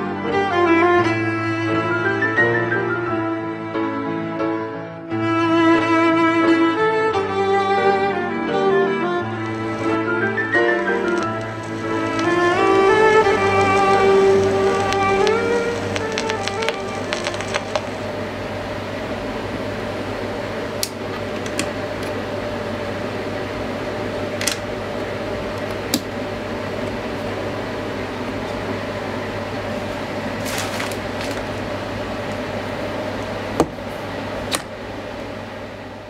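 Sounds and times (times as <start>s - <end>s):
low hum: 9.2s - 36.0s
vinyl record hiss: 9.2s - 36.0s
sharp vinyl clicks: 9.3s - 18.3s.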